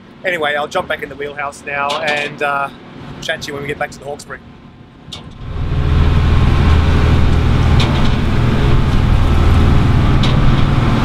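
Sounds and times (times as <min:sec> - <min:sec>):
diesel engine droning: 0:00.0 - 0:11.0
wind: 0:00.0 - 0:11.0
sea noise: 0:05.2 - 0:11.0.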